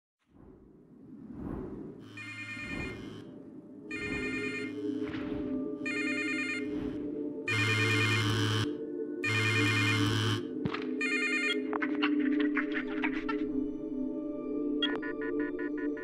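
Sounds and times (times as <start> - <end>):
low drone of tones: 1.9 - 10.4
phone ringtone warbling: 2.1 - 3.2, 3.9 - 5.1, 5.8 - 10.4, 11.0 - 11.7.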